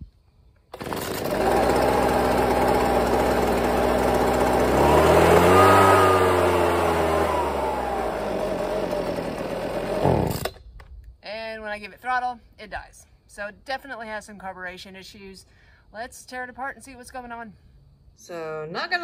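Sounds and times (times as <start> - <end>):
leaf blower engine revving: 0.7 - 10.6.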